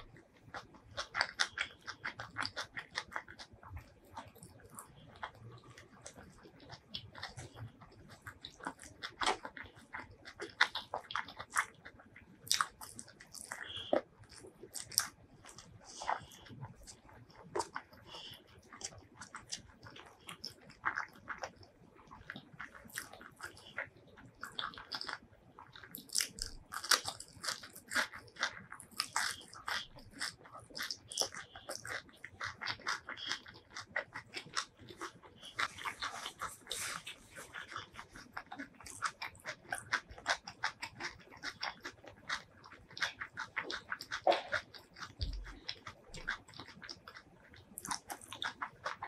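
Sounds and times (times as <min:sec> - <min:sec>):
chewing and crunching: 0:00.0 - 0:49.0
wet mouth clicks: 0:12.5 - 0:49.0.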